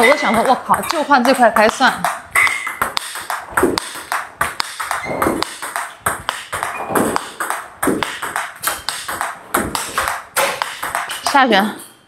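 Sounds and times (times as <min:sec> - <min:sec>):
table tennis ball ticking: 0:00.0 - 0:12.0.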